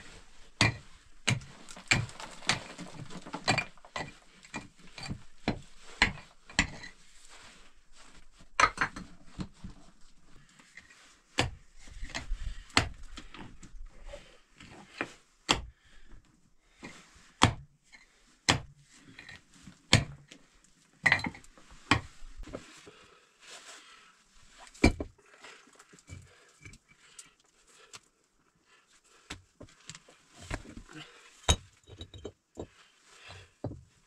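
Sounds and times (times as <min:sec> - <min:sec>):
soil and stones trickling: 0:00.4 - 0:05.4.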